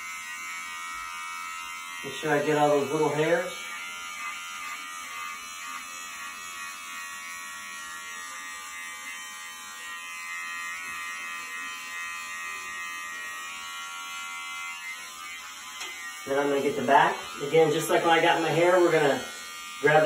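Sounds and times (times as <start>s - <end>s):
electric beard trimmer buzzing: 0.0s - 20.0s.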